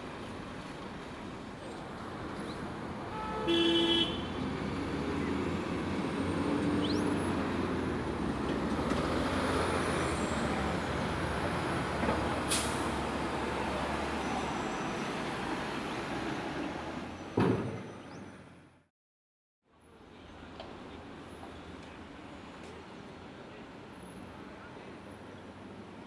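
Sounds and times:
city traffic rumble: 0.0 - 18.9, 19.7 - 26.0
vehicle horn toot: 3.1 - 4.3.

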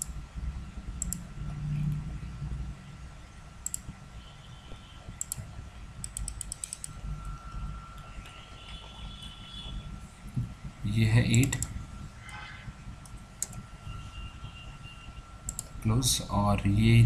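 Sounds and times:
low steady hum: 0.0 - 17.0
computer mouse clicks: 1.0 - 2.1, 3.6 - 4.0, 5.2 - 9.7, 13.0 - 13.6, 15.5 - 15.7.

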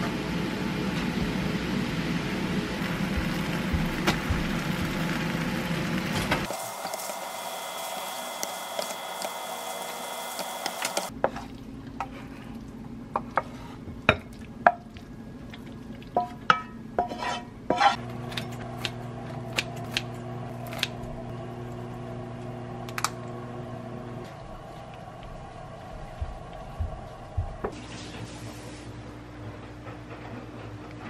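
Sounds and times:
sauce sizzling in a frying pan: 2.8 - 11.1
steady low hum: 11.1 - 31.0
wooden spatula knocking and scraping: 16.2 - 19.7.

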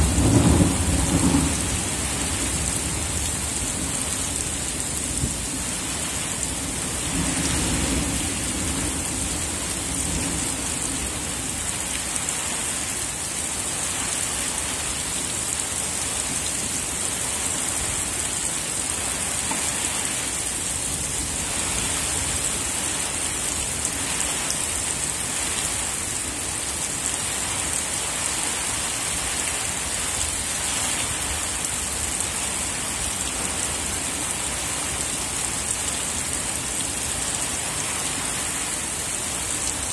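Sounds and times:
low rumble of thunder: 0.0 - 5.6
heavy rain pouring: 0.0 - 39.9.

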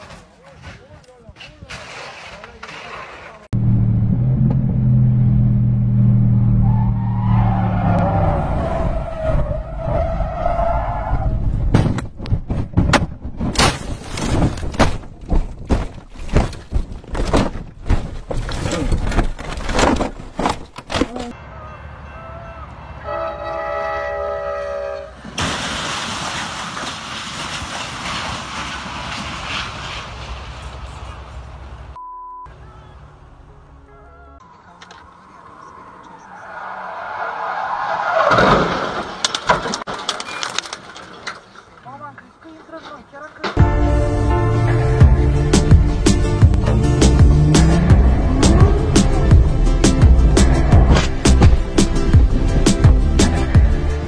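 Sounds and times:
car crashing impacts: 11.6 - 21.3, 25.3 - 31.0, 38.0 - 41.8
passenger train passing: 21.9 - 25.4
train horn blasts: 22.9 - 25.2
race car engine at high revs: 46.6 - 49.5.

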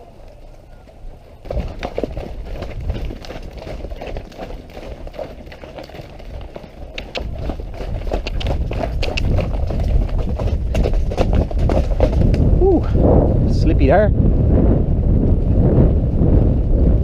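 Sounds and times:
horse hoofbeats on mud: 0.3 - 12.6
low rumble: 7.2 - 17.0.

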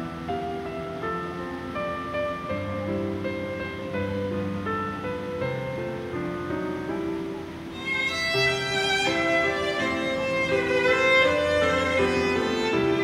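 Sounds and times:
violin playing held notes: 7.7 - 13.0.

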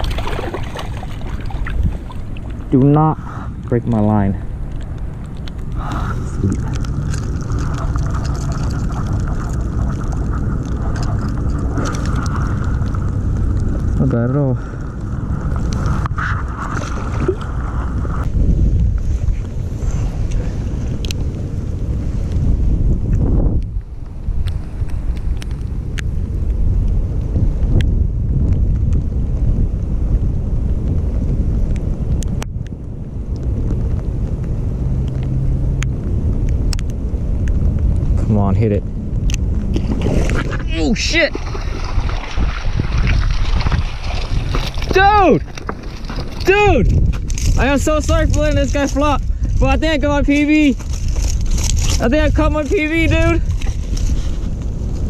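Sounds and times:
wind buffeting microphone: 0.0 - 55.0
rain ticking on jacket: 4.6 - 16.6.

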